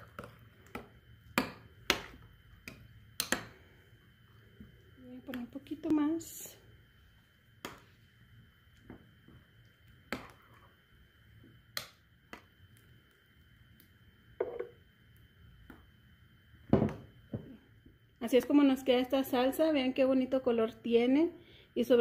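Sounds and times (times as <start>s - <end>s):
spoon stirring salsa: 0.0s - 3.5s, 7.0s - 10.8s.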